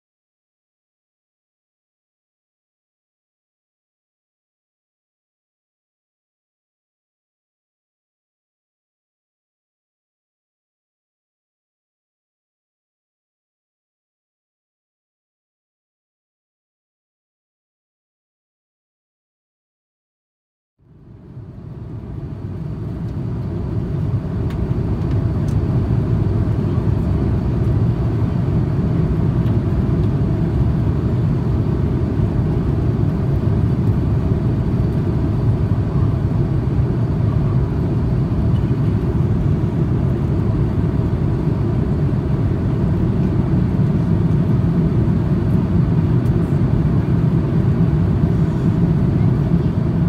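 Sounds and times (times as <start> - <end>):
airplane cabin engine rumble: 20.8 - 50.0.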